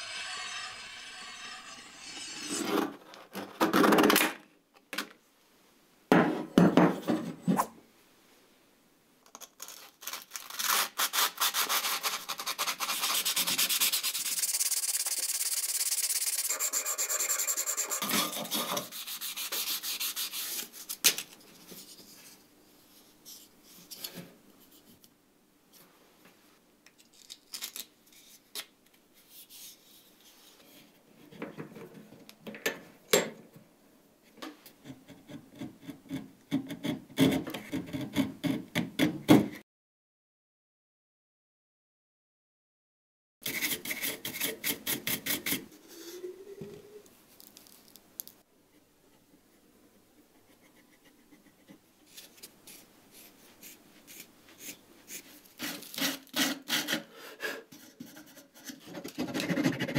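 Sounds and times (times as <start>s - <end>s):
wood rubbed on sandpaper: 0.0s - 2.6s, 11.1s - 20.7s
needle file rasping: 0.0s - 2.8s, 10.7s - 20.7s.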